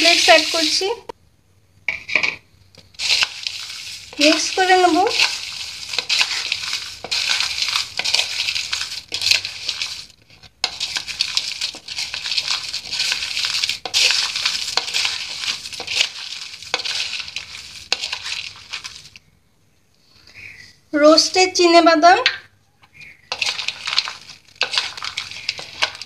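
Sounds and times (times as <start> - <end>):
cornflakes crunching: 0.0 - 1.0, 2.8 - 19.2, 22.9 - 26.0
metal spoon scraping a bowl: 3.0 - 18.9, 23.2 - 26.0.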